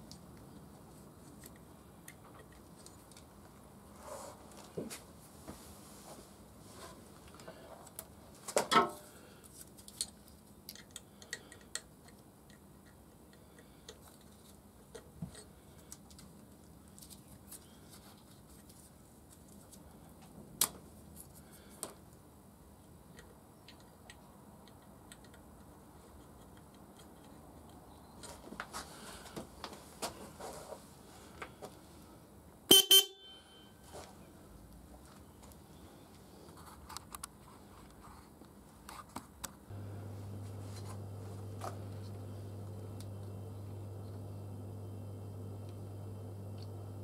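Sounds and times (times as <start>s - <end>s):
motorcycle horn honking: 32.7s - 33.8s.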